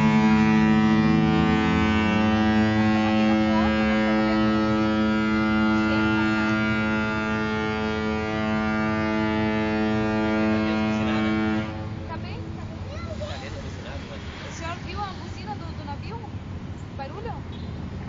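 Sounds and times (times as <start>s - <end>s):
ship's horn deep blast: 0.0s - 12.2s
lower horn tone: 0.0s - 12.4s.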